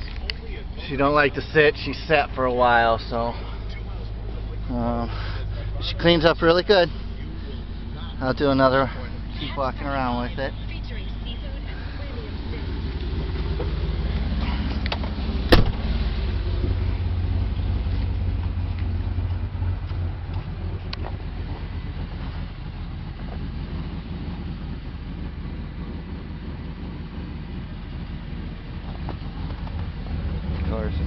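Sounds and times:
van engine idling: 0.0 - 31.0
sharp bang: 15.5 - 15.9.

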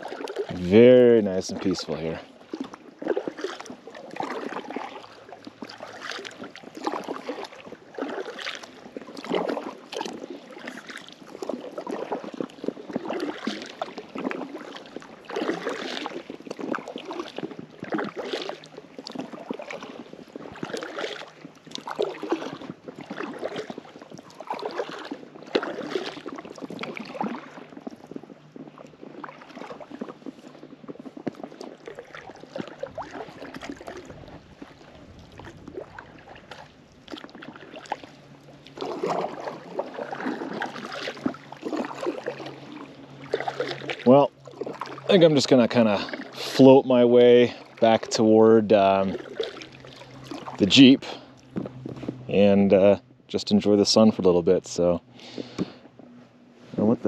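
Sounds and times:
paddle splashing in water: 0.0 - 57.0.

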